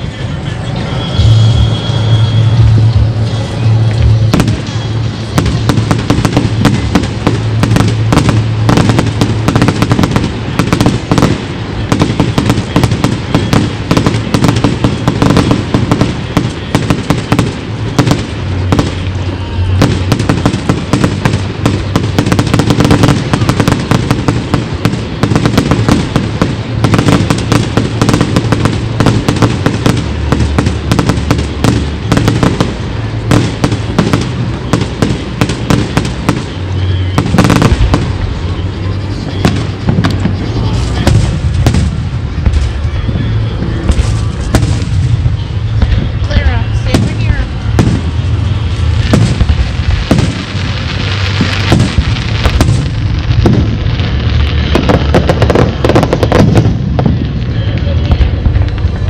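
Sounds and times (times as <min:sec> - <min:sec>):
music with low notes: 0:00.0 - 0:23.4
fireworks crackles and bangs: 0:00.0 - 0:59.0.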